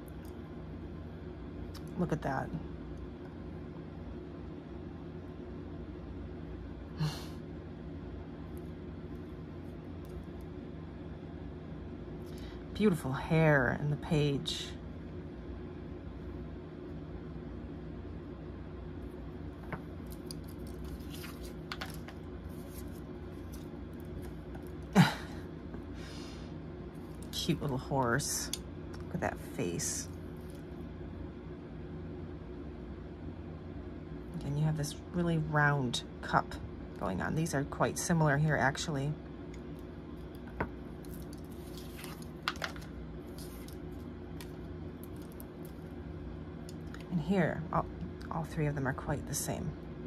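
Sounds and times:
steady low hum: 0:00.0 - 0:50.0
cards tapping and rustling: 0:20.8 - 0:23.6.

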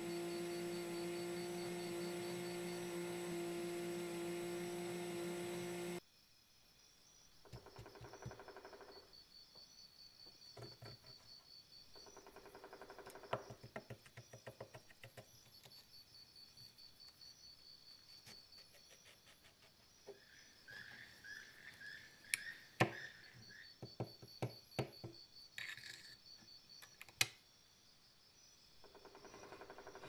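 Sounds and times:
drill motor whining: 0:00.0 - 0:06.0.

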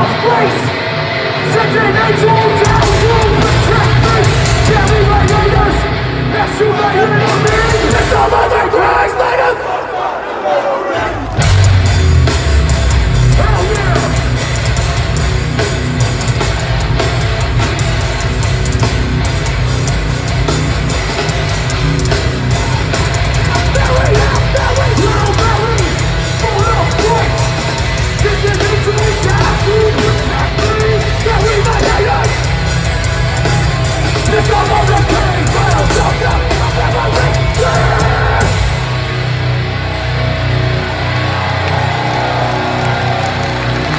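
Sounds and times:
hardcore band playing live: 0:00.0 - 0:09.9, 0:11.0 - 0:43.9
person shouting vocals: 0:34.3 - 0:38.6.

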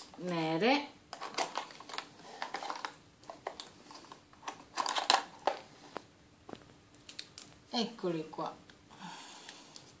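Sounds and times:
plastic packaging clicks and rustling: 0:01.1 - 0:07.6.

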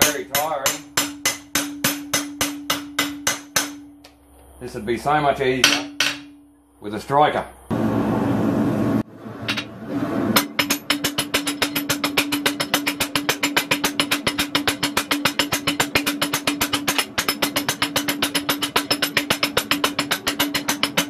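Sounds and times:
hammers striking metal die: 0:00.0 - 0:04.2, 0:05.6 - 0:06.5, 0:10.4 - 0:21.0
steady ringing tone: 0:05.5 - 0:07.7.

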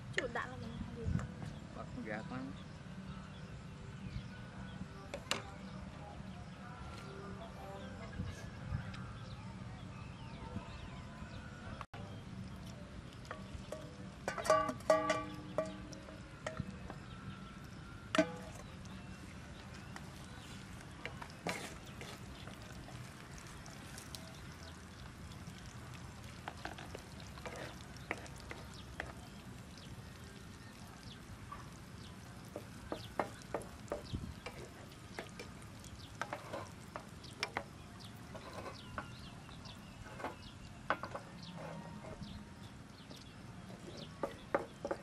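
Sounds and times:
eggs and meat frying: 0:11.9 - 0:45.0
spatula scraping pan: 0:21.1 - 0:22.5, 0:26.6 - 0:29.2, 0:32.5 - 0:37.6, 0:38.2 - 0:39.2
spatula tapping pan: 0:32.5 - 0:35.6.

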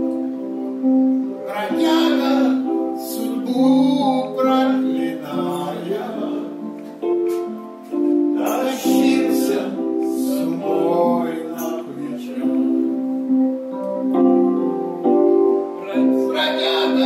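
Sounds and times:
jazz piano chords: 0:00.0 - 0:17.0
man singing: 0:01.4 - 0:06.7, 0:08.4 - 0:13.2, 0:15.8 - 0:17.0.

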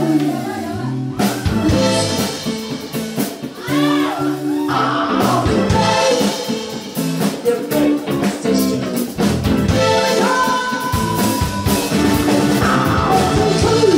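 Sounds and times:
woman singing: 0:00.0 - 0:01.8, 0:09.7 - 0:12.0
drum kit: 0:00.0 - 0:13.9
electric guitar: 0:00.0 - 0:13.9.

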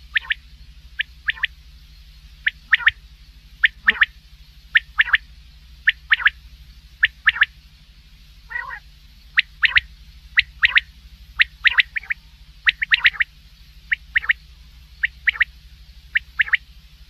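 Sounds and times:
quail calling: 0:00.0 - 0:00.4, 0:01.0 - 0:01.6, 0:02.4 - 0:03.0, 0:03.6 - 0:06.4, 0:07.0 - 0:07.6, 0:08.5 - 0:13.3, 0:13.9 - 0:16.6
steady low hum: 0:00.0 - 0:17.0.

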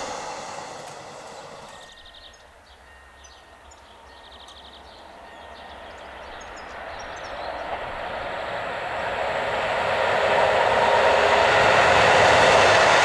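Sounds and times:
birds chirping: 0:00.0 - 0:09.2
train rolling on rails: 0:00.0 - 0:13.0.

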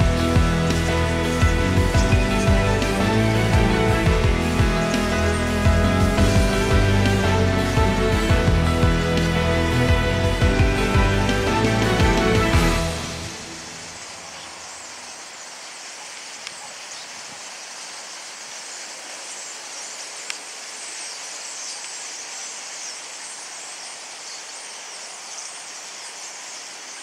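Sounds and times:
flock of starlings calling: 0:00.0 - 0:27.0
wingbeats: 0:00.0 - 0:27.0
faint clicks: 0:16.4 - 0:16.6, 0:20.2 - 0:20.5.

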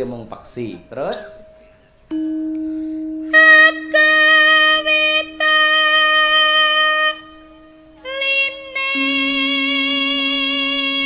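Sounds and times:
steady low tone: 0:00.0 - 0:11.0
woman singing long held notes: 0:03.2 - 0:11.0.

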